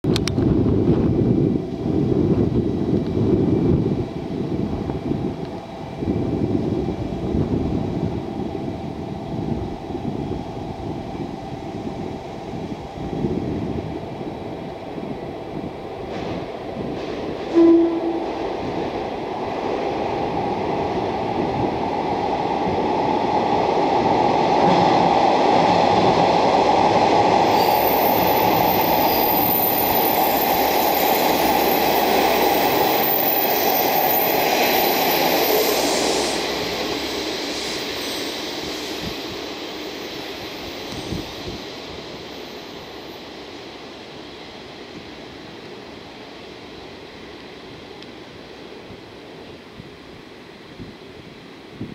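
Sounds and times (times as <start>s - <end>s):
diesel train passing: 0.1s - 51.8s
train horn toot: 17.5s - 18.4s.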